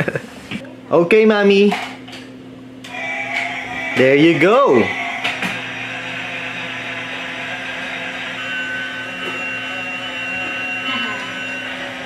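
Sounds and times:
thin high tone: 2.9 - 12.0
toy train motor whirring: 2.9 - 12.0.

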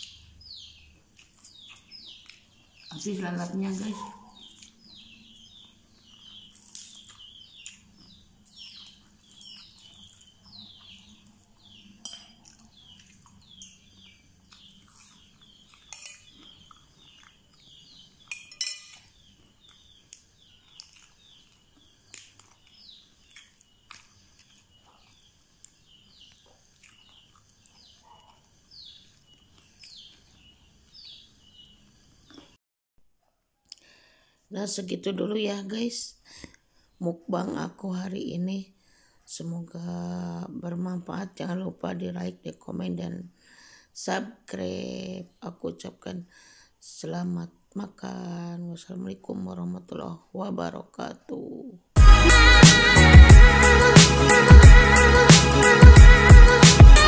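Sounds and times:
metal spoon clinking on plate: 12.0 - 12.4, 15.9 - 16.3, 18.3 - 19.0
high downward sliding chirps: 52.0 - 57.0.

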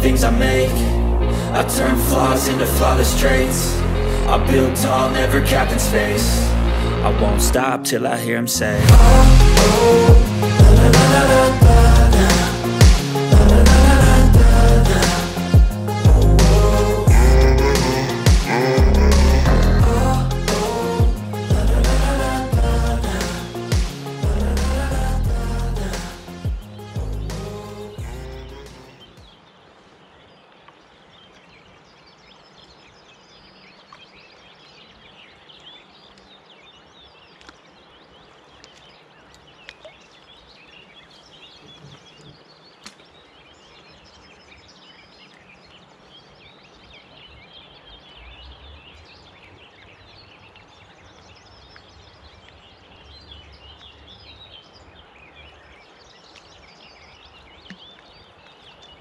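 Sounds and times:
flowing river water: 0.0 - 59.0
small birds chirping: 14.1 - 21.2, 25.9 - 59.0.

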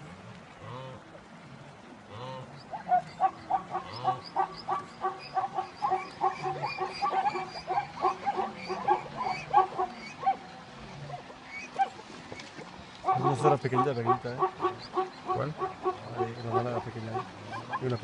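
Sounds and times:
herd animals calling: 3.2 - 10.4, 13.0 - 18.0.

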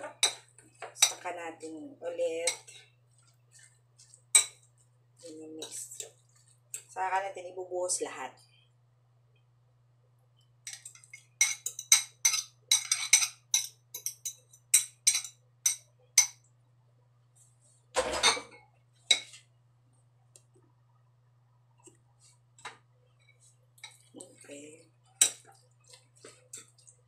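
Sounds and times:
spoon clinking on ceramic bowls: 0.1 - 1.2, 2.4 - 2.9, 4.3 - 4.7, 10.7 - 16.4, 19.1 - 19.3, 25.2 - 25.6.

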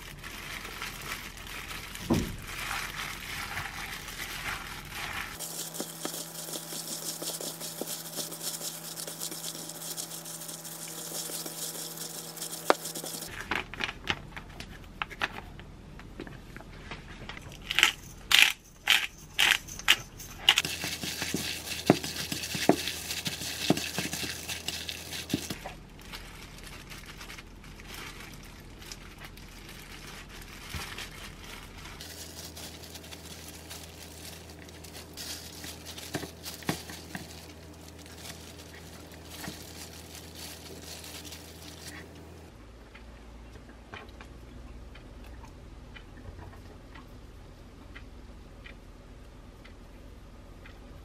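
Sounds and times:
cabbage leaves crinkling and rustling: 0.0 - 6.6, 20.5 - 42.3
gloved hand squishing filling: 0.0 - 13.3, 18.9 - 42.2.

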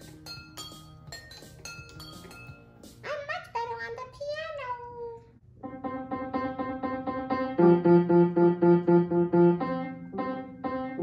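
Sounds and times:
piano notes repeated quickly: 5.6 - 11.0.

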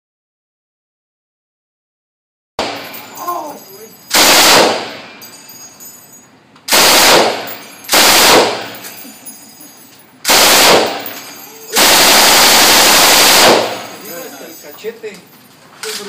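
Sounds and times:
machine gun firing bursts: 4.1 - 5.0, 6.7 - 8.8, 10.3 - 11.1, 11.8 - 14.0.

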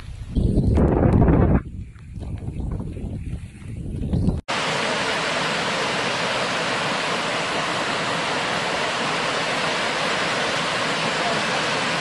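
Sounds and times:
water rushing over weir: 4.5 - 12.0.

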